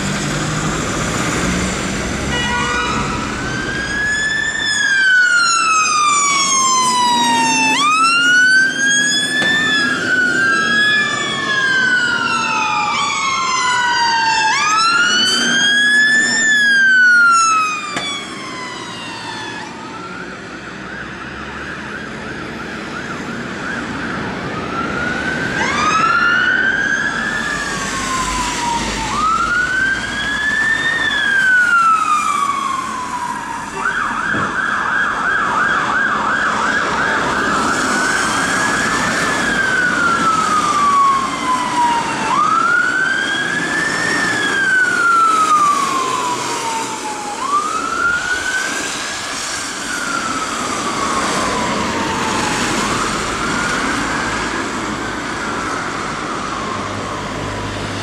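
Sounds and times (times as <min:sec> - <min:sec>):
engine and road noise: 0:00.0 - 0:58.0
fire engine sirens wailing: 0:00.0 - 0:58.0
siren fast yelp: 0:02.4 - 0:20.3.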